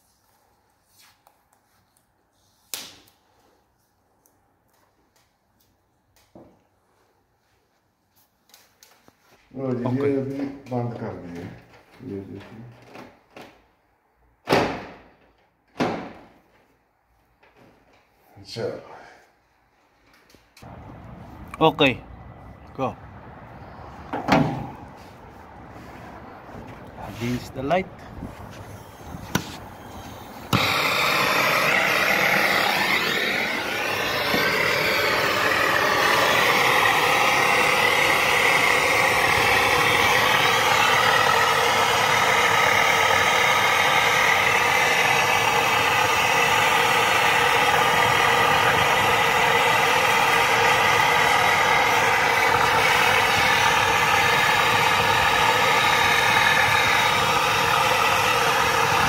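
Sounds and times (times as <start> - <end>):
gas torch flame hissing: 28.5 - 59.0.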